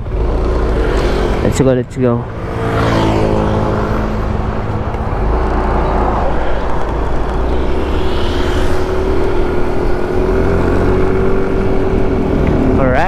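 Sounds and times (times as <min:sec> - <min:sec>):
scooter engine accelerating: 0:00.0 - 0:13.0
faint rising whine: 0:04.0 - 0:11.2.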